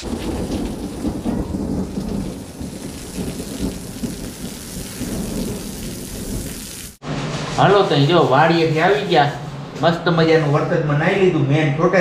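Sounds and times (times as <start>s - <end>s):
water from pipe splashing: 0.0s - 7.0s
heavy rain on concrete: 0.0s - 7.6s.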